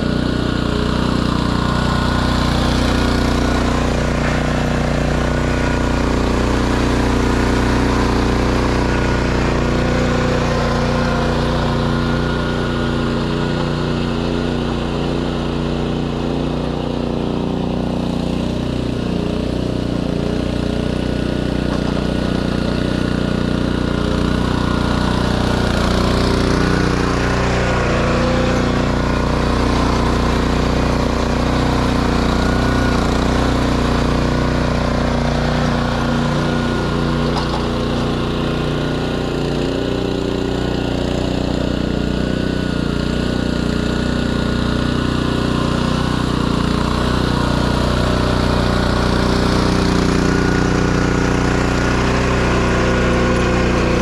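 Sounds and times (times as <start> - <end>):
lawn mower small engine running: 0.0 - 54.0.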